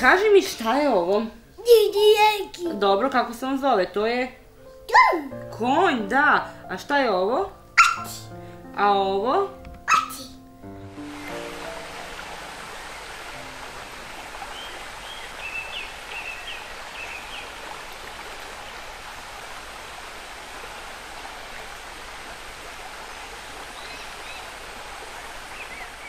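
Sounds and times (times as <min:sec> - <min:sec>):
river water rushing: 0:09.9 - 0:26.0.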